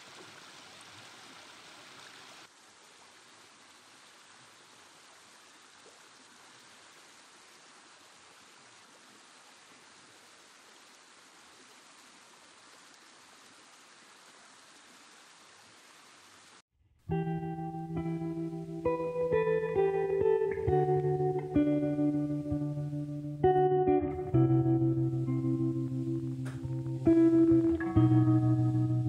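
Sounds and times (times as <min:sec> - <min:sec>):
stream water rushing over weir: 0:00.0 - 0:16.6
plucked guitar music: 0:17.1 - 0:29.0.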